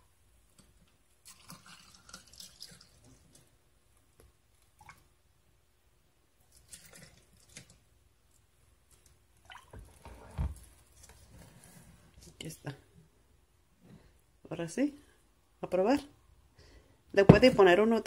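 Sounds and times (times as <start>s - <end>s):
drink ladled over ice: 1.2s - 3.4s, 6.5s - 7.8s.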